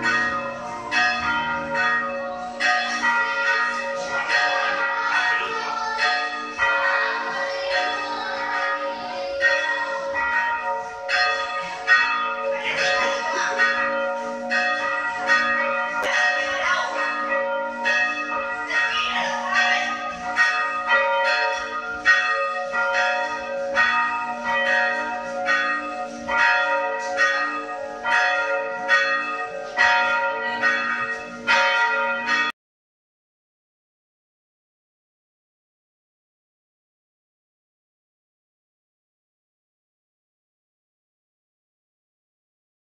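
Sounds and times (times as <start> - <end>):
church bells pealing: 0.0 - 32.6.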